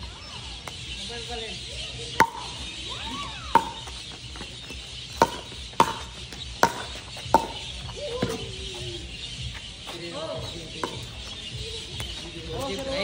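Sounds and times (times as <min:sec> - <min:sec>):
paddles hitting pickleball: 0:02.1 - 0:08.8, 0:09.5 - 0:13.0.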